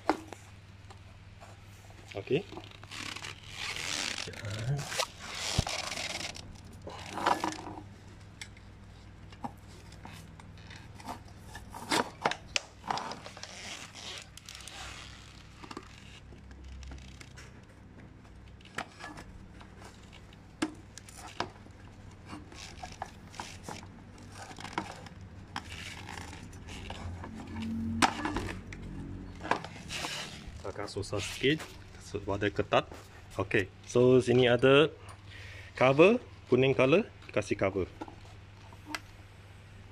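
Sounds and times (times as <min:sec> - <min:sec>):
plastic parts clicking and scraping: 0:00.0 - 0:32.1
rustling: 0:22.2 - 0:33.9.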